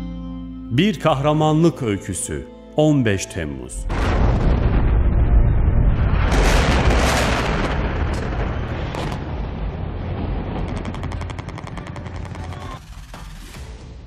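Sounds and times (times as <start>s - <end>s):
explosion booms with rumble: 3.8s - 12.8s
rapid gunshots: 10.6s - 12.9s.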